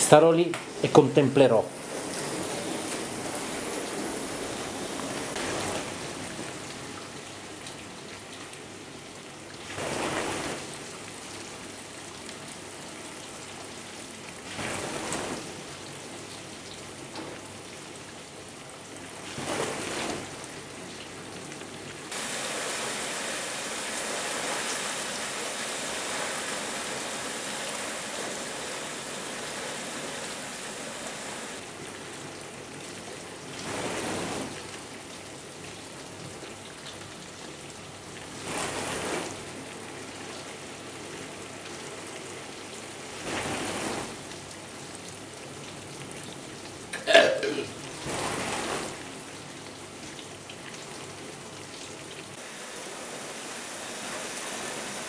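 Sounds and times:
dishwasher water spraying: 1.7 - 6.3, 22.1 - 31.6, 47.0 - 48.9, 52.4 - 55.0.

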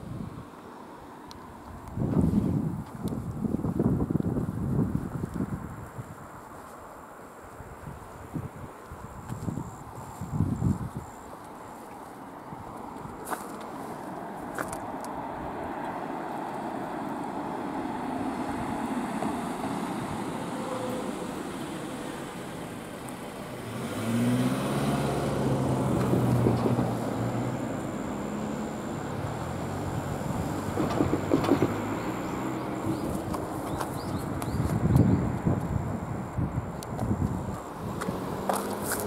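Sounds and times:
vehicle engine running nearby: 0.0 - 39.0
cars passing: 11.0 - 39.0.

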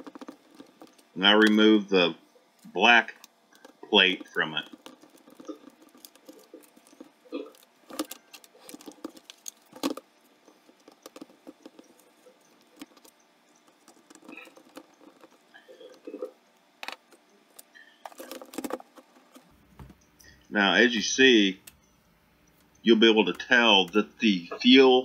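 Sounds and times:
plastic clicks and rattles: 2.6 - 20.0.

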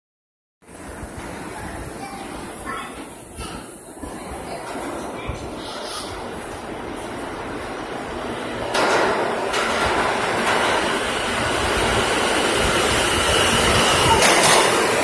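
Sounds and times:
subway train rumble: 0.6 - 15.0
train clatter: 1.0 - 15.0
high whine: 6.3 - 15.0.

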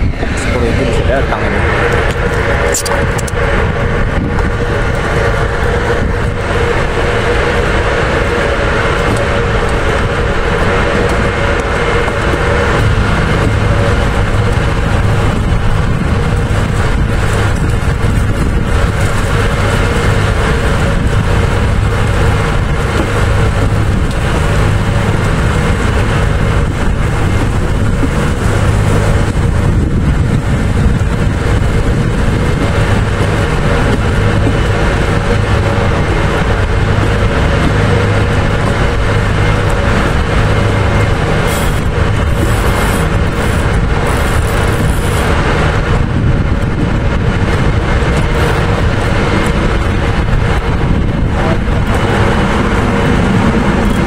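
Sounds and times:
boat motor humming: 0.0 - 54.0.

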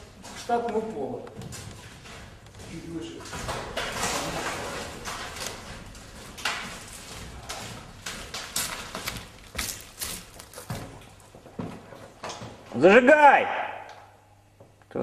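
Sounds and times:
footsteps on walkway: 4.6 - 12.6.

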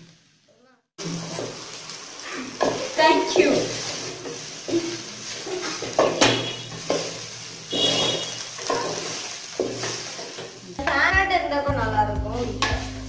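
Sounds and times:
oil sizzling: 0.0 - 13.0
wooden spatula scraping a pot: 2.4 - 10.6.

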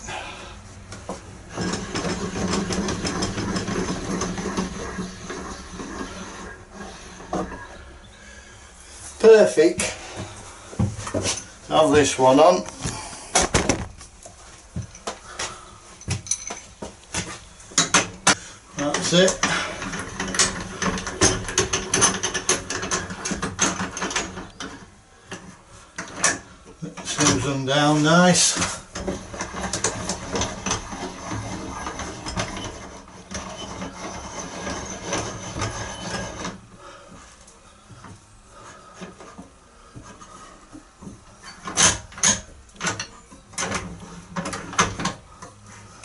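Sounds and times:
winder mechanism clicking and rattling: 17.8 - 24.7.

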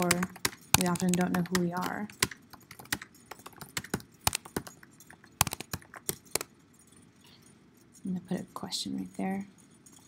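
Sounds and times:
keyboard key clicks: 0.0 - 6.5.

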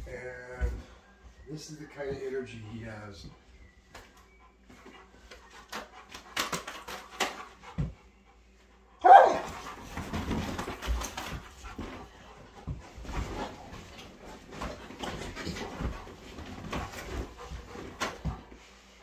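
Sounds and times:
dog barking: 9.0 - 9.5
bedding rustling: 9.1 - 19.0.

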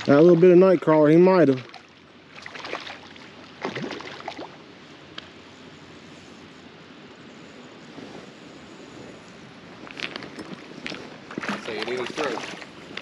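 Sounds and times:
rushing creek water: 0.0 - 4.7, 10.5 - 13.0
wind: 0.0 - 13.0.

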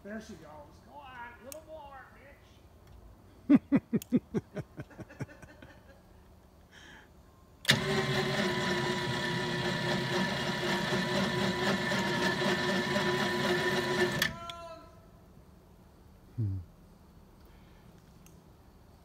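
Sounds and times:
small gas engine whining: 7.6 - 14.4.

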